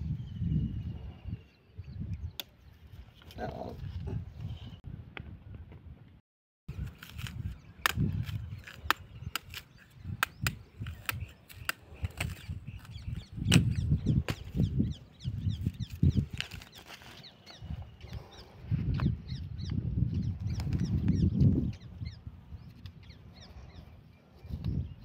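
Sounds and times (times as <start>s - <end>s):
machete chopping fruit husk: 6.8s - 14.6s.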